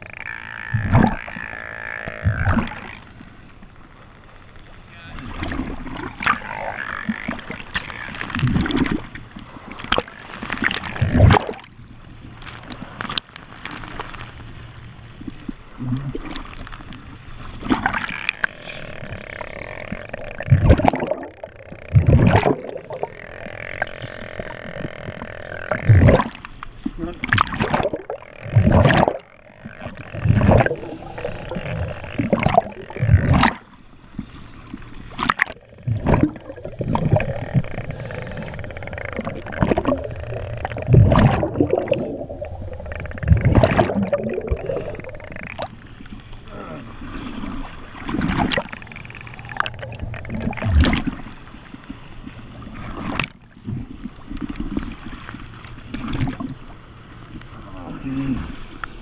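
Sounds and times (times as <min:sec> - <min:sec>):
air bubbles gurgling: 0:00.0 - 0:03.0, 0:05.4 - 0:11.7, 0:17.6 - 0:26.4, 0:27.1 - 0:33.6, 0:35.1 - 0:45.8, 0:47.3 - 0:51.4
water splashing and sloshing: 0:00.0 - 0:59.0
regulator breathing underwater: 0:18.0 - 0:20.6, 0:30.4 - 0:32.3, 0:36.9 - 0:40.9, 0:44.4 - 0:45.3.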